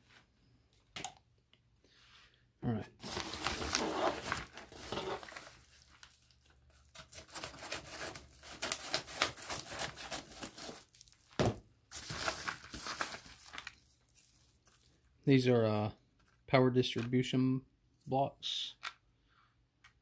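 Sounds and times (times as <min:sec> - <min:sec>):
paper mailer crinkling: 0:03.0 - 0:11.3, 0:11.9 - 0:14.9.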